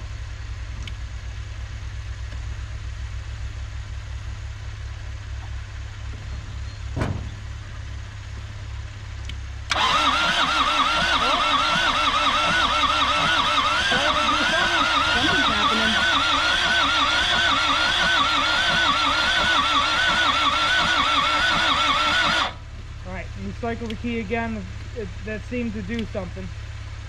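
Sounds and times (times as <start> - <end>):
low engine rumble: 0.0 - 27.0
sharp thump: 6.9 - 7.5
starter motor cranking engine: 9.2 - 26.5.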